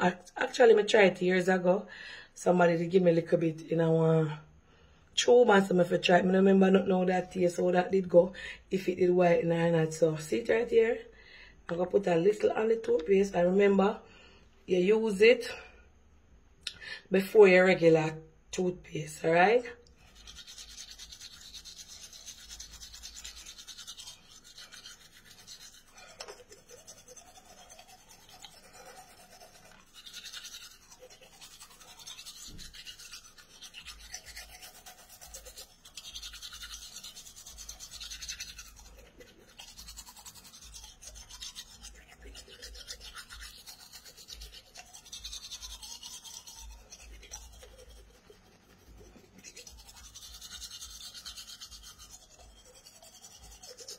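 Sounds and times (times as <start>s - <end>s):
toothbrush scrubbing teeth: 0.0s - 1.6s, 5.5s - 8.2s, 19.4s - 53.9s.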